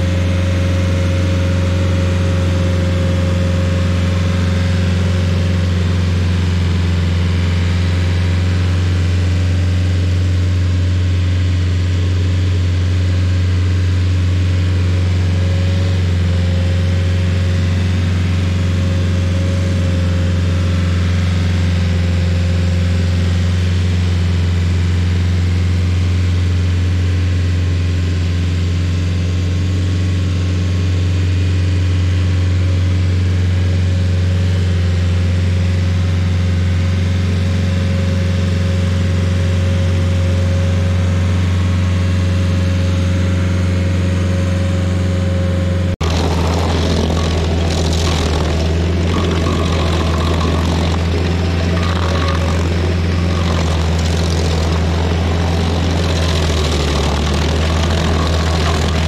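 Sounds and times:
stump grinder engine droning: 0:00.0 - 0:59.0
cutter wheel grinding stump: 0:46.0 - 0:59.0.

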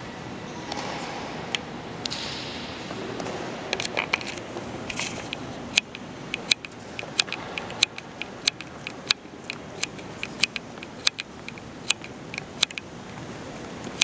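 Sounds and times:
steady background hum: 0:00.0 - 0:14.0
sharp repeating clicks: 0:05.7 - 0:12.9.

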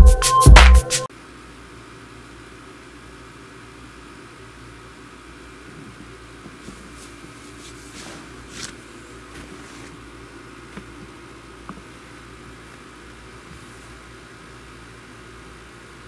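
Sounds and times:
steady room hum: 0:00.0 - 0:16.0
faint rustles and clicks: 0:05.6 - 0:14.1.

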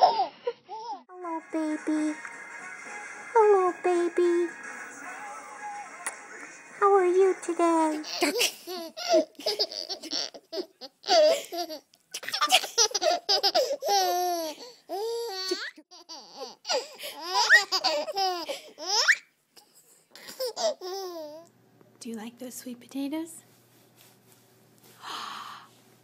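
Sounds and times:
baby giggling and squealing: 0:00.0 - 0:01.0, 0:08.0 - 0:19.3, 0:20.2 - 0:21.4.

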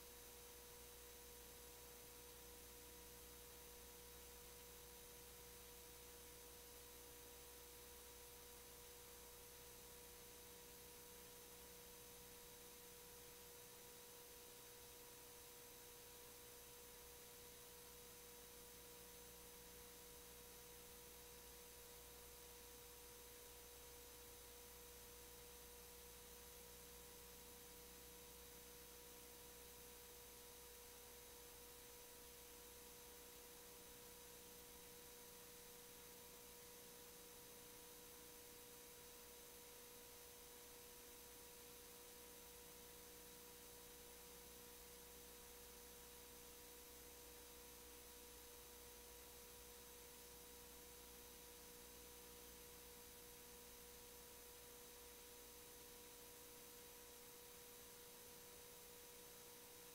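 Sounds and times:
faint hum tone: 0:00.0 - 0:59.9
faint steady hiss: 0:00.0 - 0:59.9.

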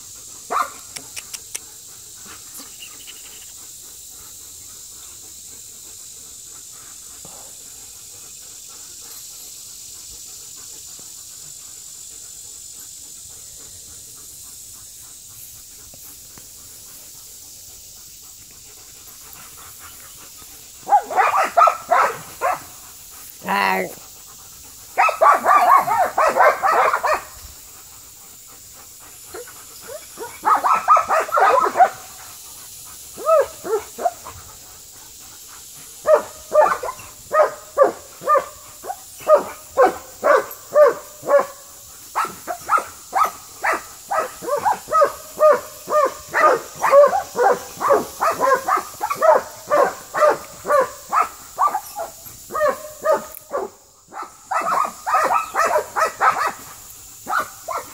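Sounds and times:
puppy barking: 0:00.5 - 0:00.8, 0:20.8 - 0:22.6, 0:25.0 - 0:27.3, 0:30.2 - 0:32.0, 0:36.1 - 0:38.5, 0:39.3 - 0:41.5, 0:42.2 - 0:56.6, 0:57.3 - 0:57.9.

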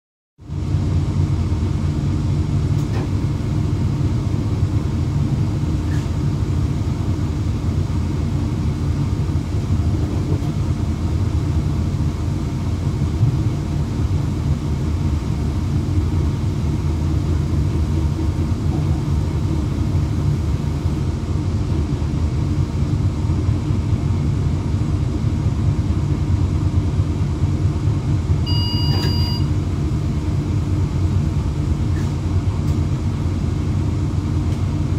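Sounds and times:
train cab low rumble: 0:00.4 - 0:34.9
electronic beep: 0:28.5 - 0:29.5.

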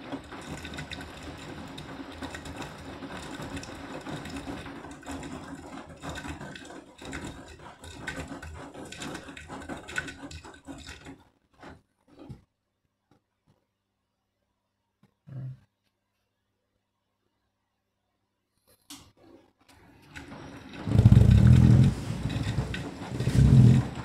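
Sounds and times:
washing machine motor hum: 0:00.0 - 0:12.4, 0:19.7 - 0:24.0.

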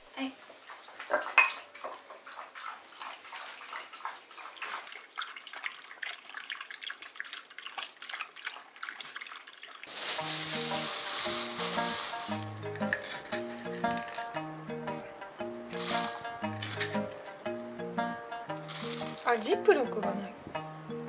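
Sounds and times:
dogs crunching food: 0:00.4 - 0:14.4
music with plucked notes: 0:09.9 - 0:21.0.

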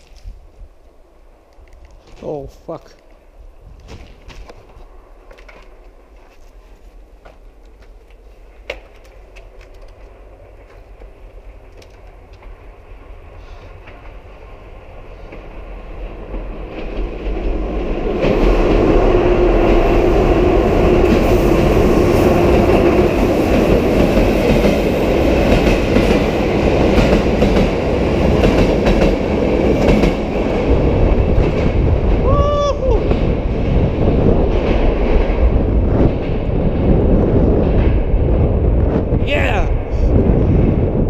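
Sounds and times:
freight train passing: 0:00.1 - 0:41.0
train wheels clattering on rails: 0:07.2 - 0:32.3, 0:33.0 - 0:39.0.

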